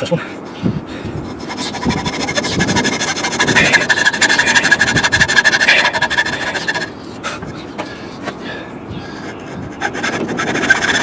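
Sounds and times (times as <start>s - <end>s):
hand saw cutting wood: 1.3s - 6.9s, 9.8s - 11.0s.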